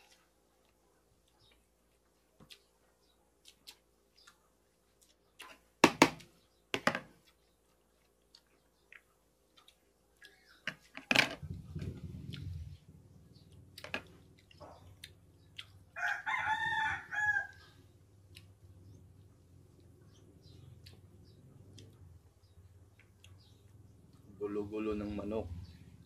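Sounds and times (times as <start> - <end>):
low rumble: 11.4 - 13.6.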